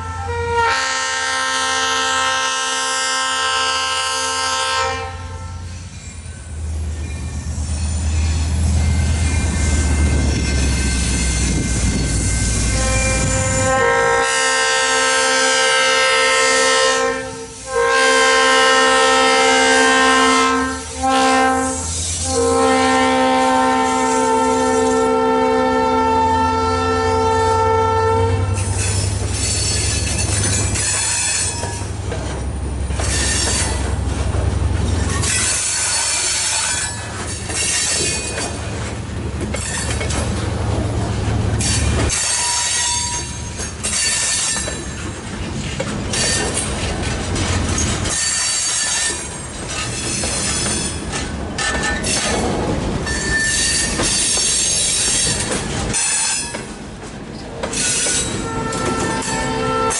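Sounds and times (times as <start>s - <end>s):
locomotive horn blasts: 0.0s - 5.7s, 11.8s - 28.8s, 58.1s - 59.9s
freight cars wheel-on-rail noise: 0.0s - 59.9s
locomotive engine drone: 19.0s - 48.2s.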